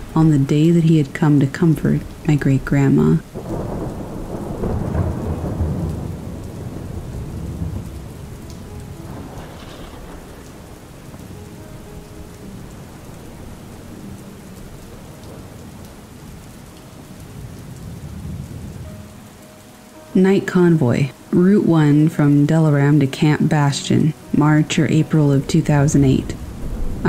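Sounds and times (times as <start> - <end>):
steady rainfall: 0.0 - 27.0
low rumble of thunder: 1.8 - 19.2, 25.0 - 27.0.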